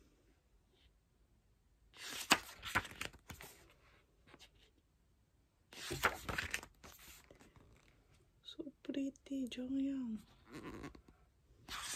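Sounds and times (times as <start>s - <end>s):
pages turning: 2.0s - 4.6s, 5.7s - 8.0s, 11.7s - 11.9s.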